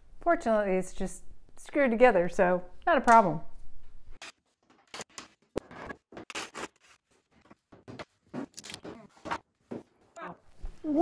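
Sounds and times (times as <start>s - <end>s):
wooden parts scraping and knocking: 4.6s - 10.2s.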